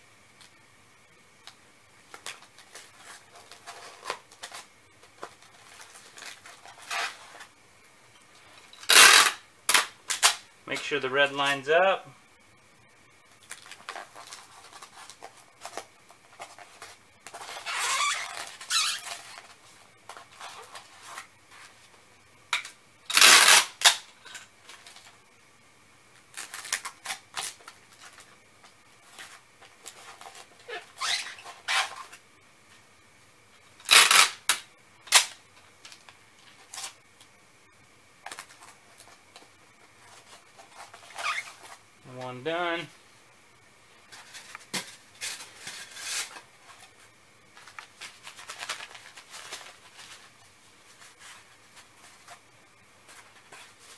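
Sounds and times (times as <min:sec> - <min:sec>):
packing tape pulled off roll: 0:01.4 - 0:07.5, 0:08.7 - 0:10.5, 0:13.4 - 0:21.8, 0:22.6 - 0:25.2, 0:26.2 - 0:28.4, 0:29.1 - 0:32.2, 0:33.8 - 0:37.0, 0:38.2 - 0:41.8, 0:44.1 - 0:52.4
rustling and handling: 0:01.4 - 0:11.9, 0:13.1 - 0:25.3, 0:26.1 - 0:32.9, 0:38.1 - 0:53.9.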